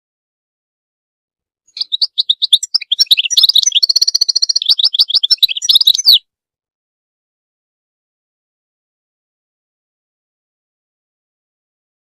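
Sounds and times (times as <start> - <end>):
finch twittering song: 1.7 - 6.2.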